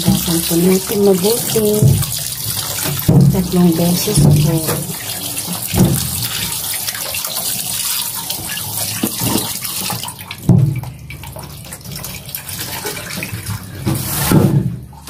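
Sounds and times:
hands rubbing meat in water: 0.0 - 14.3
tap water running into bowl: 0.0 - 14.3
water splashing: 0.0 - 14.4
thump: 5.7 - 6.1.

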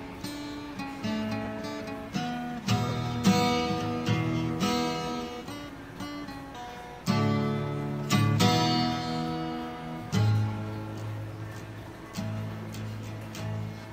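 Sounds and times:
acoustic guitar strumming chords: 0.0 - 13.9.

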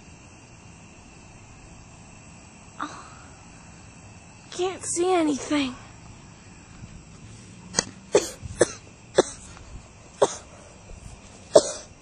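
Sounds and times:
person coughing: 8.1 - 9.5, 10.2 - 10.5, 11.5 - 11.9.

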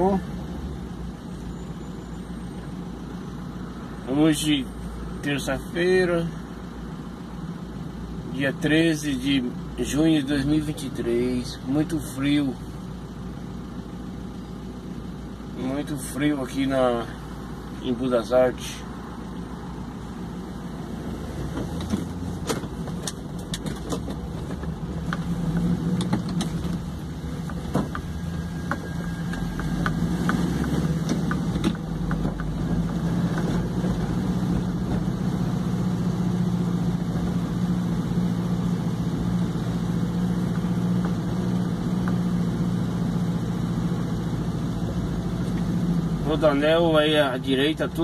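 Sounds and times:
road noise: 0.0 - 48.0
vehicle engine hum: 0.0 - 48.0
sharp clicks and knocks: 21.5 - 33.6.

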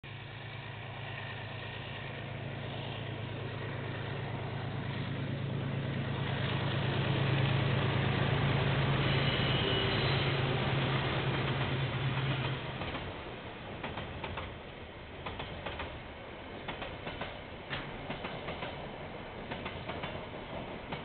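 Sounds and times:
diesel locomotive engine hum: 0.0 - 21.0
faint high whine: 0.1 - 13.8.

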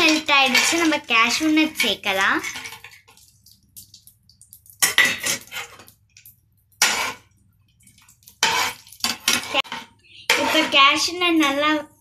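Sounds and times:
metal spoon scraping frying pan: 0.0 - 3.2, 4.8 - 5.9, 6.8 - 7.3, 8.0 - 11.8.

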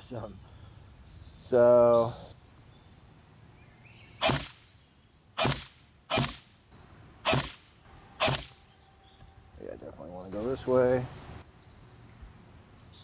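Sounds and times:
electric bb rifle shots: 4.2 - 4.6, 5.4 - 6.5, 7.2 - 8.6.

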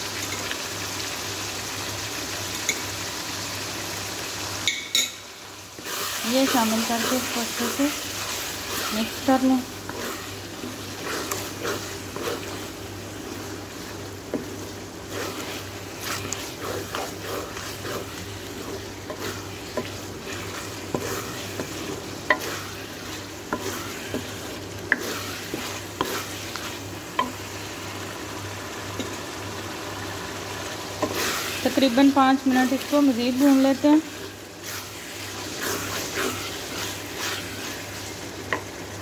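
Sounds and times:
meat sizzling in oil: 0.0 - 39.0
spoon tapping against pan: 4.6 - 5.2
wooden spoon scraping a pan: 5.8 - 27.7, 31.0 - 38.7.

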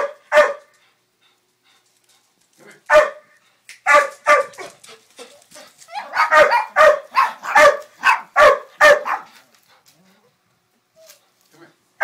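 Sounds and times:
dog barking: 0.0 - 0.7, 2.9 - 4.7, 6.0 - 9.4.

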